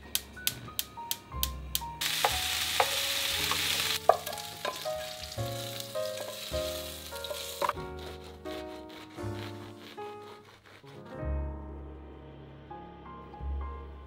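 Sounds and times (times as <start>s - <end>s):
background music: 0.0s - 14.0s
chicken sizzling in a pan: 2.0s - 7.8s.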